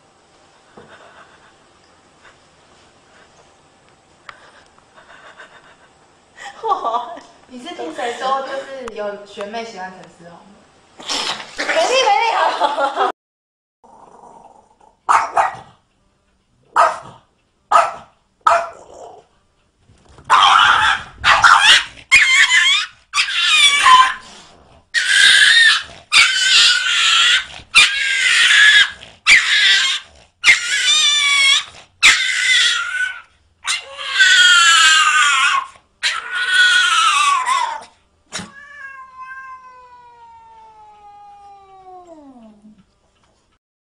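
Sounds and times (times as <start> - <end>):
cat yowling: 20.3 - 24.2, 25.0 - 42.6.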